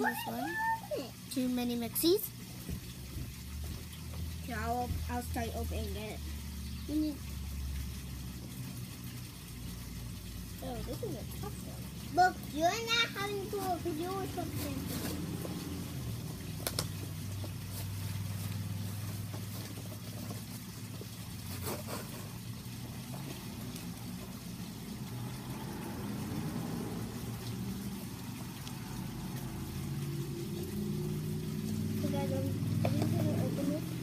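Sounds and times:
vehicle engine drone: 13.3 - 20.2, 22.6 - 34.0.

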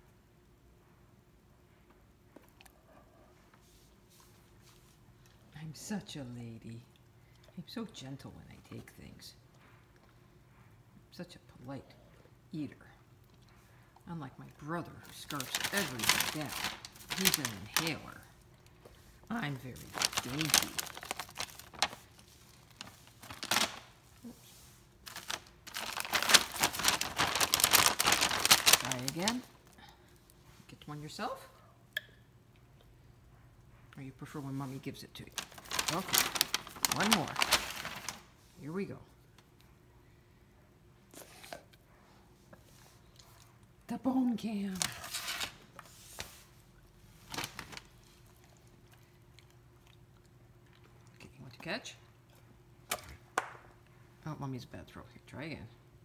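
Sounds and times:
faint steady hum: 0.0 - 56.0
plastic bag crinkling: 15.0 - 18.4, 19.2 - 29.8, 35.2 - 38.3, 44.5 - 46.4, 47.2 - 48.7.

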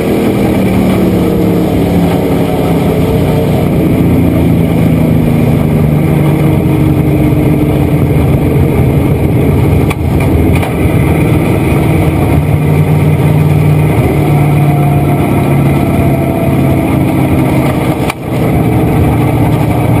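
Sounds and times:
race car engine running hard: 0.0 - 20.0.

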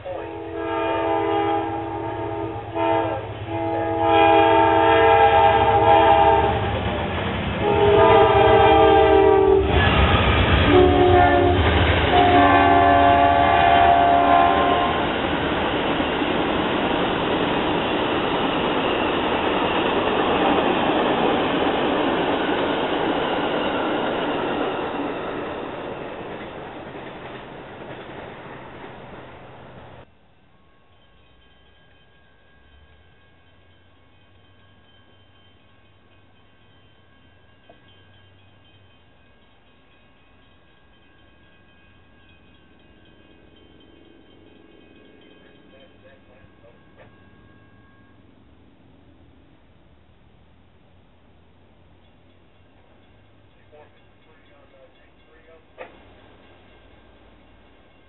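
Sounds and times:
train horn blasts: 0.0 - 6.9, 7.6 - 15.2
train cars rumbling past: 0.0 - 58.0.

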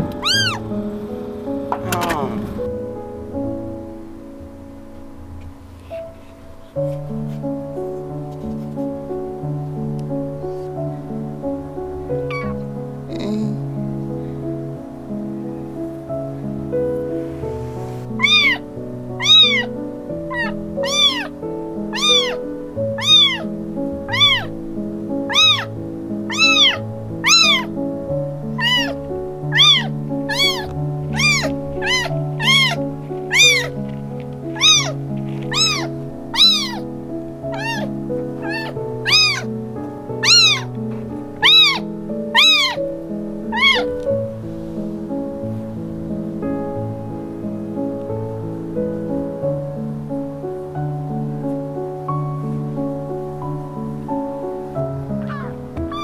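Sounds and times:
kitten meowing: 0.0 - 0.7, 12.3 - 13.6, 18.2 - 24.5, 25.3 - 27.8, 28.5 - 33.8, 34.5 - 36.8, 37.5 - 39.5, 40.2 - 40.7, 41.4 - 42.8, 43.5 - 44.1, 55.2 - 56.0
background music: 0.0 - 56.0.

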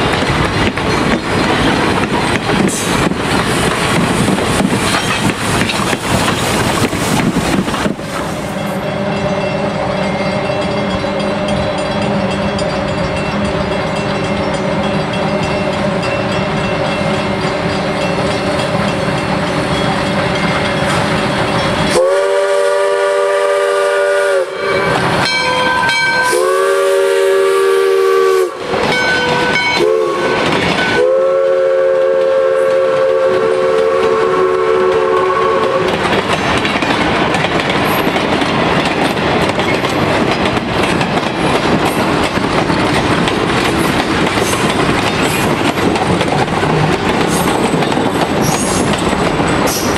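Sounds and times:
train cars clacking over rails: 0.0 - 49.9
steam whistle blasts: 21.9 - 28.7, 29.3 - 35.9.

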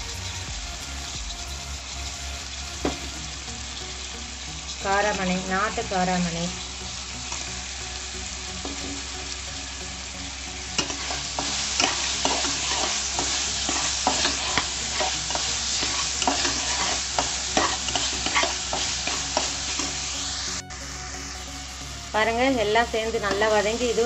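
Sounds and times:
food sizzling in hot oil: 0.0 - 24.0
spoon scraping a pan: 10.8 - 20.0.

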